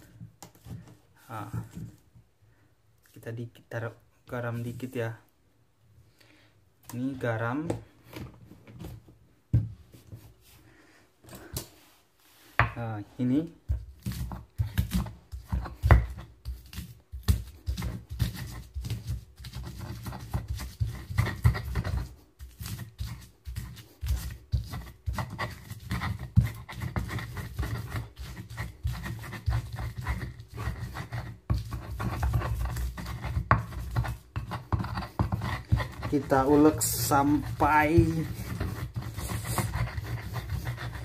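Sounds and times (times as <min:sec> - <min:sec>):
pestle pounding in mortar: 0:13.7 - 0:41.0.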